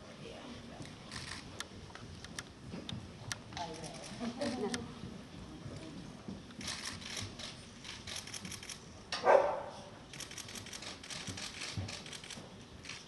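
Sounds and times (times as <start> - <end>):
camera shutters clicking: 1.1 - 1.7, 6.6 - 8.8, 10.1 - 13.0
dog barking: 9.2 - 9.8.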